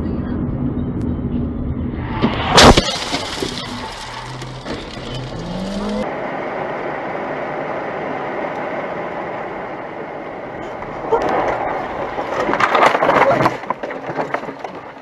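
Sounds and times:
car engine and tyre noise: 0.0 - 15.0
car collision crash: 1.9 - 6.1.

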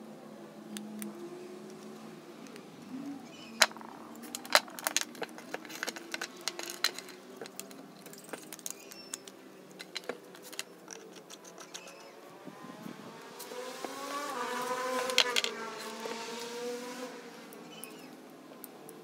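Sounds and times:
wood and plastic clicks and knocks: 3.6 - 12.1, 14.9 - 16.0.

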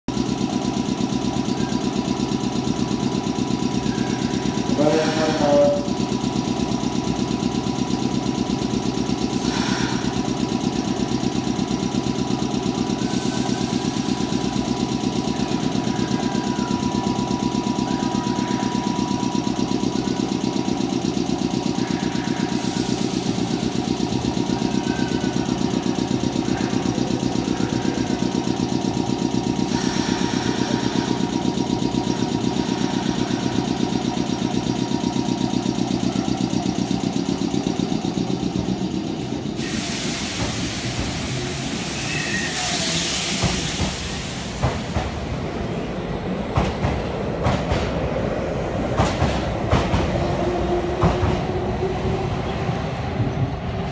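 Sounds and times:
electric train humming: 0.1 - 53.9.

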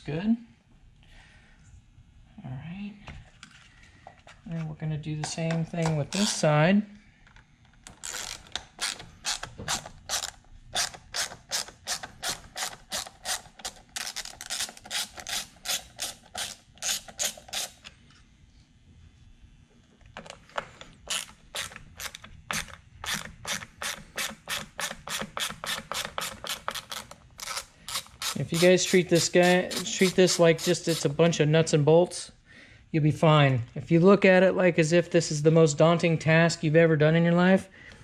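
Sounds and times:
hand ratchet clicking: 7.9 - 17.8, 21.1 - 31.1.

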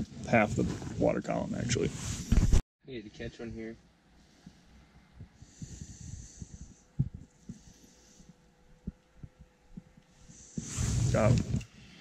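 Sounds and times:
breaths hissing: 5.4 - 8.5, 10.1 - 12.0.

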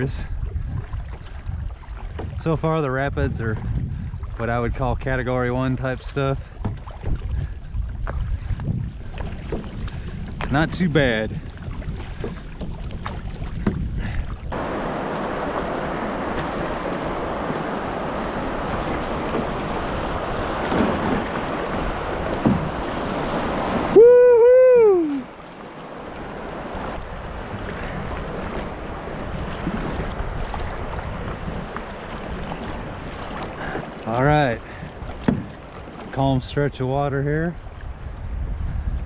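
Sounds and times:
water rushing and splashing: 0.0 - 38.4
person whooping: 23.9 - 25.3.

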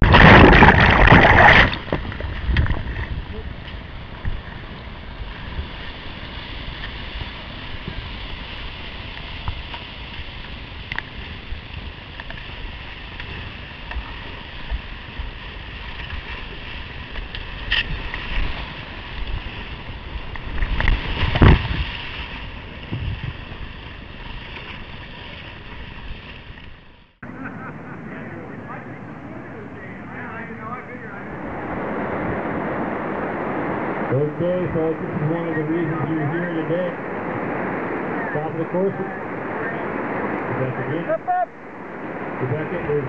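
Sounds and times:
whitewater rapids rushing: 0.0 - 2.0, 27.2 - 43.0
paddle splashes: 0.0 - 27.4
water hitting microphone: 0.0 - 43.0.

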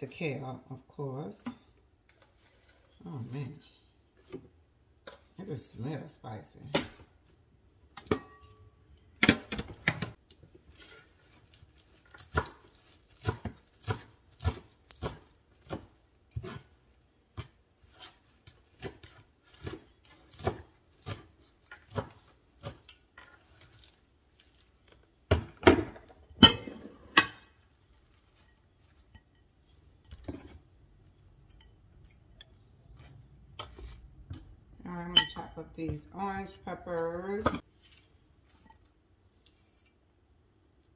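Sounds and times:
knife chopping on wooden board: 12.2 - 16.7, 18.8 - 22.9.

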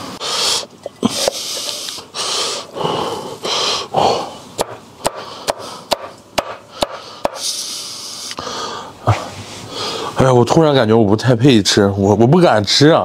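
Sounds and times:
breathy hissing bursts: 0.0 - 10.2
cleaver chopping on wooden board: 4.6 - 7.4.

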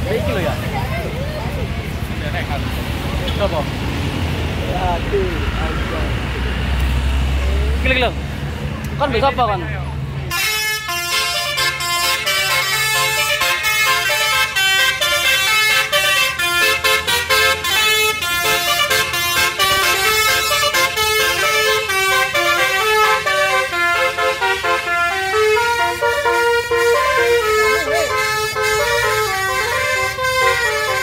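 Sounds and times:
multi-tone bus horn melody: 10.3 - 31.0.

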